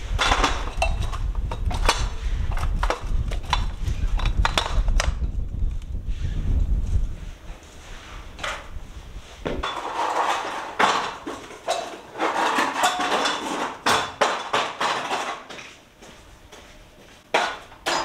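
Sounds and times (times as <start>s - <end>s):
metal ladder clanking on concrete: 0.0s - 5.1s, 9.6s - 15.7s, 17.3s - 18.0s
ladder scraping: 0.0s - 5.4s, 7.4s - 15.9s.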